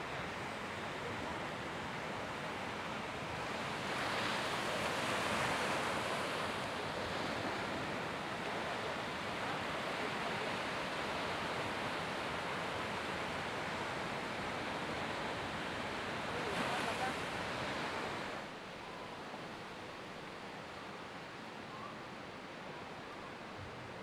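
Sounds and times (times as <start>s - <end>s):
ocean surf breaking: 0.0s - 18.5s.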